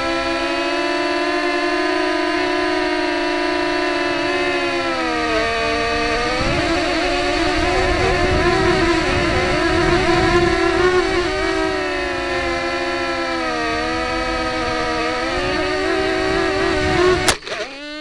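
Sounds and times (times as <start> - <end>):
quadcopter propellers whining: 0.0 - 18.0
rushing wind noise: 3.6 - 17.5.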